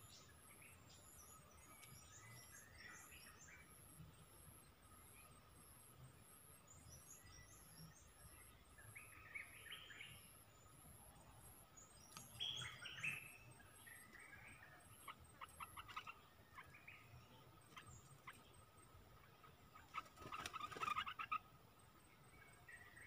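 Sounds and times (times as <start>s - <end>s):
bird calls: 6.7s - 23.0s.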